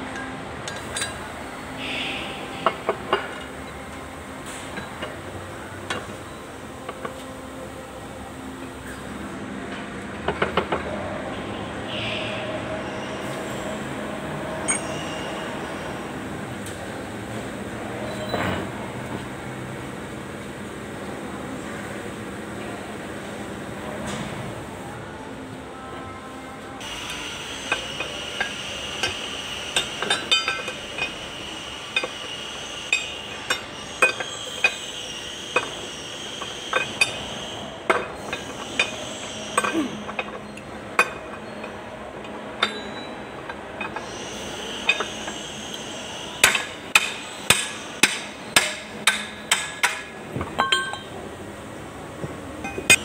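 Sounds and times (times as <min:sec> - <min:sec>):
metal parts tapping and clinking: 0:00.1 - 0:01.2, 0:14.6 - 0:15.0, 0:29.8 - 0:31.2, 0:32.9 - 0:34.8, 0:46.4 - 0:51.2.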